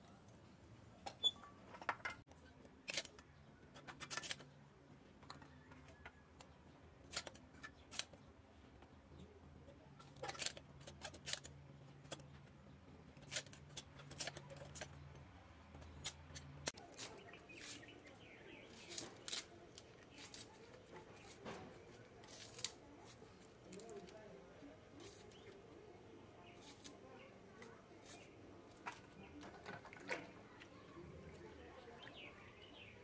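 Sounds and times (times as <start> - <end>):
blade scraping and cutting: 10.0 - 12.3, 13.1 - 15.2, 15.8 - 24.1, 24.9 - 25.6, 26.4 - 30.2
knife slicing seeds: 15.8 - 24.2, 25.0 - 25.6, 26.5 - 28.9.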